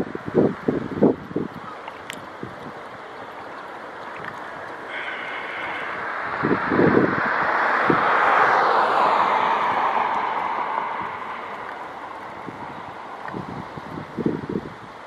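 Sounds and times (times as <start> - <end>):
wind buffeting microphone: 0.0 - 15.0
rushing noise: 2.8 - 15.0.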